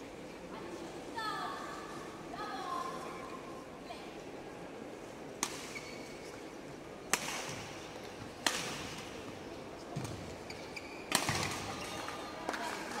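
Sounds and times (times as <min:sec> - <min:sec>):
racket striking shuttlecock: 0:08.4 - 0:09.1, 0:11.1 - 0:11.7.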